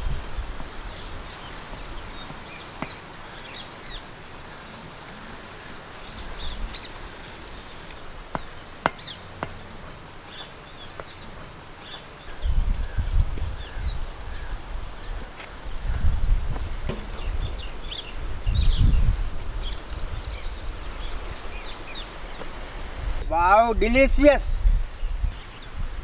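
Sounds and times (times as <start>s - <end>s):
small birds chirping: 0.6s - 22.7s, 24.9s - 26.0s.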